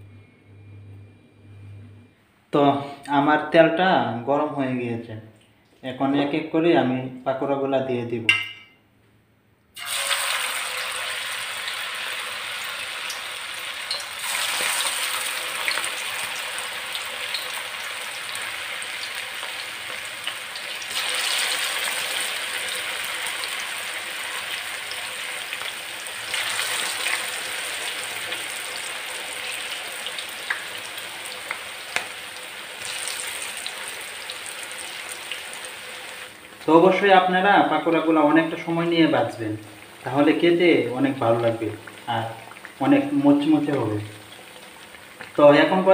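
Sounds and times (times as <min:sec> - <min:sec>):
food deep-frying in hot oil: 0:09.8 - 0:45.9.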